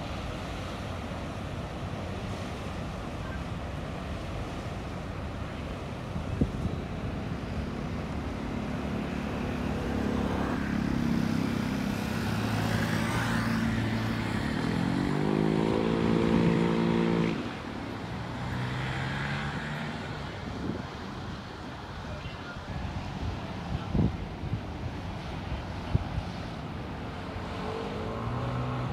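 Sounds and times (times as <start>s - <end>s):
engine humming and revving: 7.5s - 20.8s, 27.1s - 28.9s.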